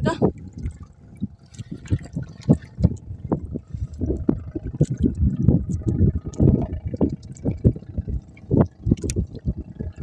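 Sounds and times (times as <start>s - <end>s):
water splashing against boat hull: 0.0s - 10.0s.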